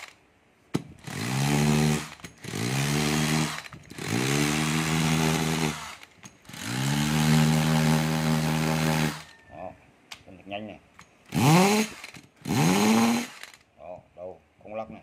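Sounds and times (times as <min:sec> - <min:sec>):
cordless drill motor whining: 0:01.0 - 0:09.3, 0:11.3 - 0:13.6.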